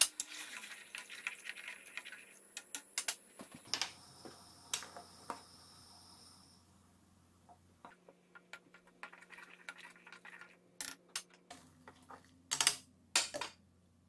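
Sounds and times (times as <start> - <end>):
sauce boiling in a pot: 0.0 - 6.9, 7.8 - 10.8
low hiss: 2.2 - 8.3.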